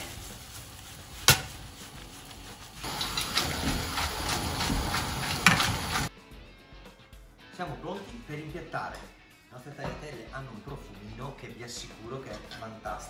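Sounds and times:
pasta scraping in frying pan: 0:00.0 - 0:06.1.

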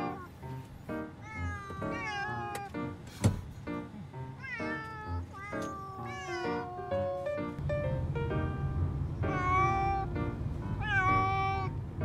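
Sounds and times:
cat meowing: 0:00.0 - 0:02.8, 0:04.4 - 0:07.3, 0:09.2 - 0:11.7.

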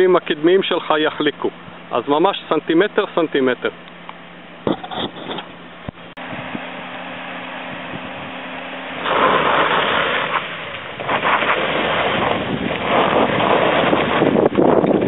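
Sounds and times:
car engine running: 0:00.0 - 0:15.0
wind noise on microphone: 0:04.6 - 0:06.8, 0:09.0 - 0:15.0.

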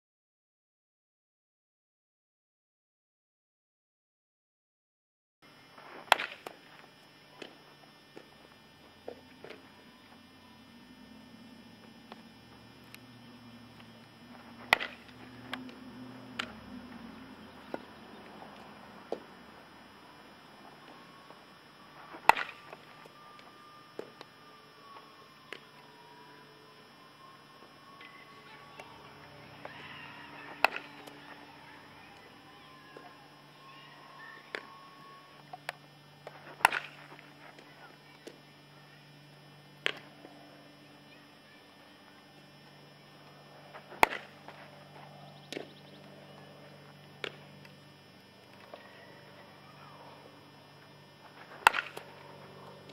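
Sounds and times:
bat cracking a ball: 0:05.9 - 0:07.5, 0:13.8 - 0:16.6, 0:20.6 - 0:24.3, 0:28.8 - 0:33.1, 0:35.7 - 0:37.6, 0:39.8 - 0:40.1, 0:43.7 - 0:44.7, 0:51.3 - 0:52.3
bat hitting a ball: 0:06.0 - 0:06.6, 0:14.4 - 0:15.7, 0:22.1 - 0:22.9, 0:29.6 - 0:31.3, 0:36.5 - 0:37.2, 0:43.9 - 0:44.6, 0:51.4 - 0:52.2.

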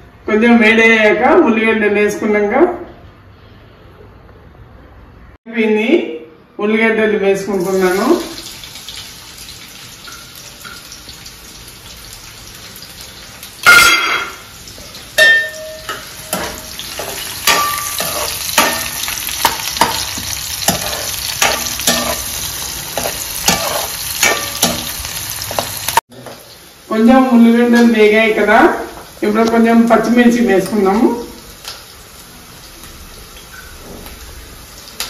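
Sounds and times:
onions sizzling in oil: 0:07.6 - 0:35.0
spatula scraping a pan: 0:16.2 - 0:25.8.

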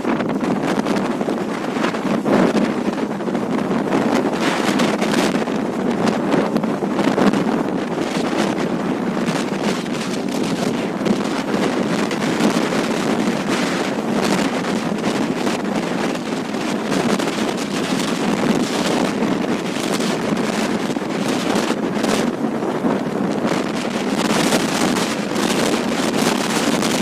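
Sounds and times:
rough sea breaking: 0:00.0 - 0:27.0
wind buffeting microphone: 0:00.0 - 0:27.0.

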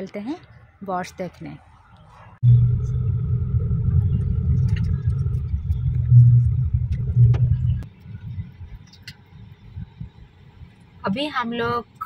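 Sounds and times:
low vehicle rumble: 0:02.0 - 0:11.1.

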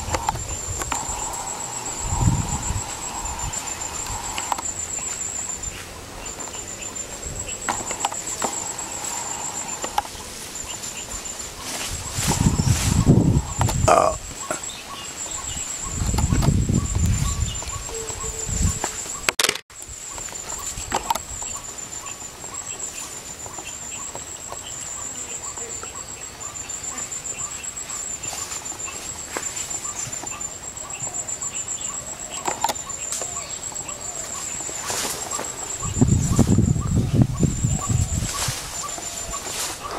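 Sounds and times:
low rumble on microphone: 0:00.0 - 0:04.5
high-pitched insect trill: 0:00.0 - 0:39.9.

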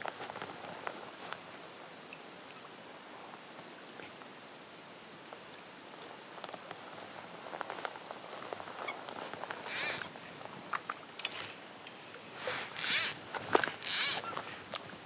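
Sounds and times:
fly line zipping off reel: 0:09.6 - 0:10.1, 0:12.6 - 0:14.4
small clicks: 0:09.6 - 0:10.1, 0:12.8 - 0:14.8.

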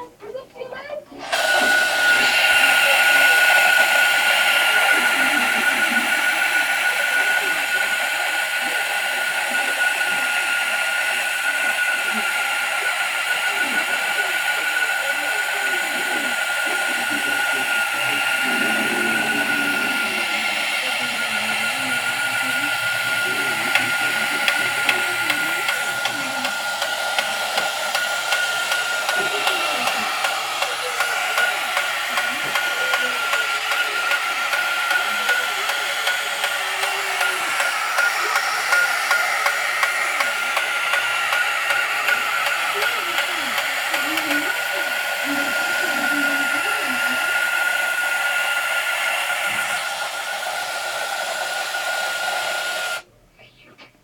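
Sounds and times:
small electric motor whining: 0:01.1 - 0:53.0.

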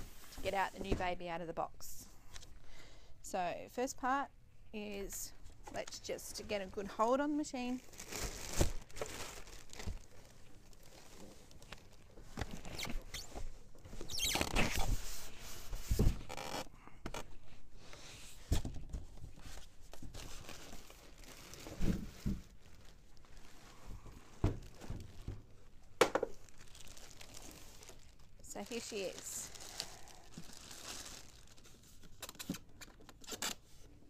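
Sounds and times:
plastic bag rustling: 0:07.6 - 0:14.2, 0:19.4 - 0:25.7, 0:26.3 - 0:32.1.

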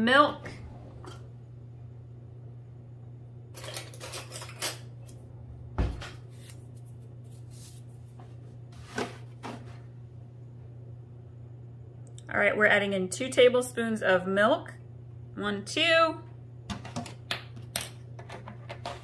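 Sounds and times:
low steady hum: 0:00.0 - 0:19.0
dull thump: 0:05.8 - 0:06.2.

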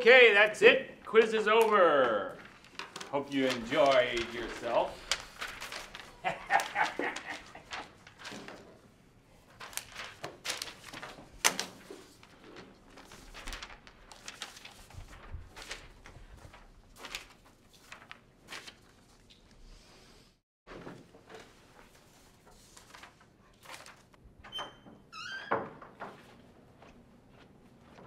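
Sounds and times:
paper rustling and shuffling: 0:01.0 - 0:19.9, 0:20.7 - 0:24.2.

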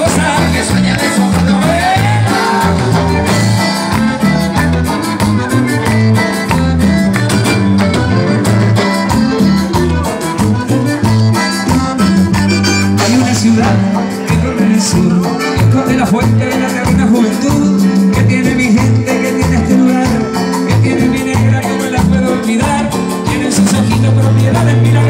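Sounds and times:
accordion: 0:00.0 - 0:25.0
band playing latin dance music: 0:00.0 - 0:25.0
congas: 0:00.0 - 0:25.0.

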